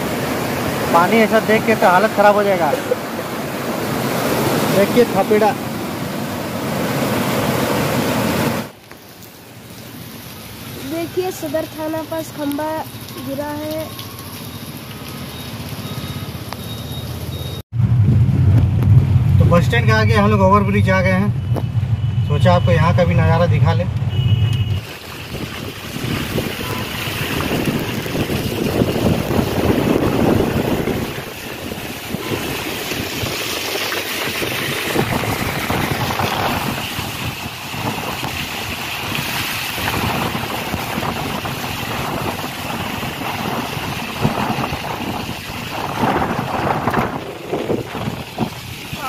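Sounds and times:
deep rumble: 17.7s - 33.6s
wind noise: 24.1s - 49.0s
tyre hiss on wet road: 24.8s - 49.0s.

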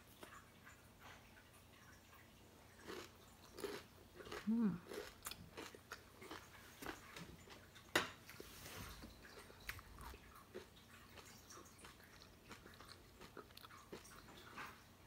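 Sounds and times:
person chewing crunchy cracker: 2.8s - 15.0s
mouth sounds: 4.4s - 4.9s.

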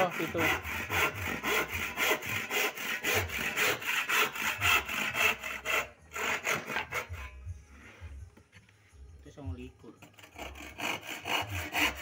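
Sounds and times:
hand saw cutting wood: 0.0s - 7.4s, 10.0s - 12.0s.

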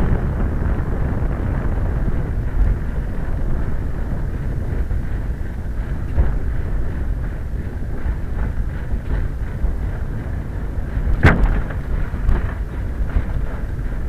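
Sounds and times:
road and wind rumble: 0.0s - 14.0s
wheel banging into pothole: 11.1s - 12.6s
small knocks: 11.1s - 13.4s.

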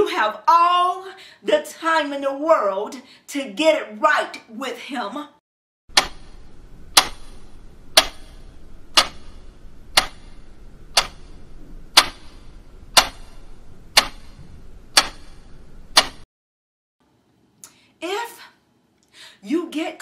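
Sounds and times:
clock ticking: 5.9s - 16.2s.

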